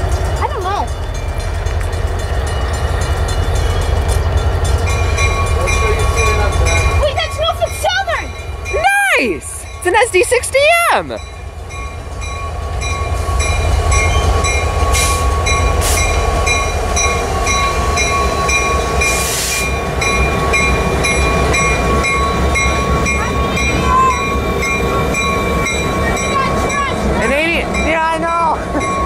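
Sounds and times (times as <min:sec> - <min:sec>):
locomotive engines rumbling: 0:00.0 - 0:29.0
pulsing high ringing tone: 0:11.2 - 0:27.0.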